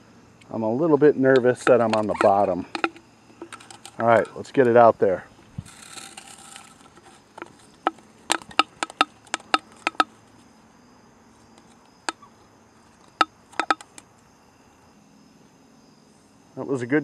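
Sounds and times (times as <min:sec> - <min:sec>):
insects trilling: 0:00.0 - 0:17.0
metallic ticks of soda can: 0:01.3 - 0:04.5, 0:05.7 - 0:10.1, 0:13.0 - 0:14.0.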